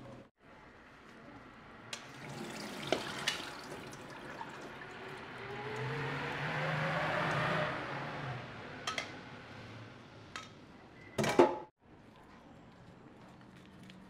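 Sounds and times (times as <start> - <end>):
water splashing into metal sink: 2.0 - 5.9.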